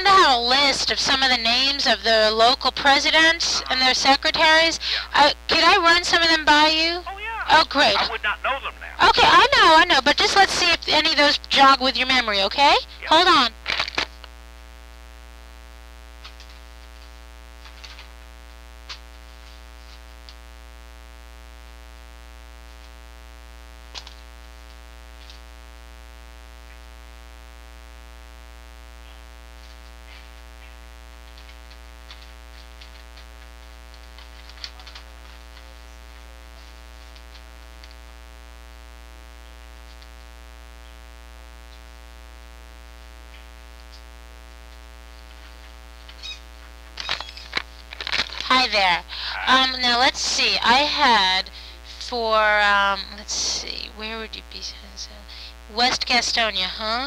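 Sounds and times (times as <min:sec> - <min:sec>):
electrical hum: 0:00.0 - 0:57.0
faint clicks and rustles: 0:29.1 - 0:38.1, 0:43.3 - 0:48.5.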